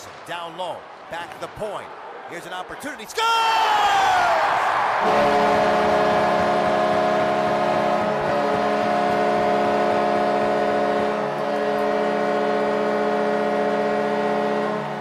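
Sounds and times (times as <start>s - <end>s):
crowd cheering: 0.0s - 15.0s
goal horn: 5.0s - 15.0s.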